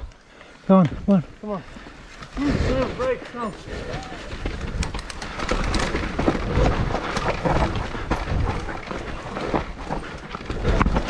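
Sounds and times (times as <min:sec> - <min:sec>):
bike knocking and rattling: 0:03.2 - 0:11.0.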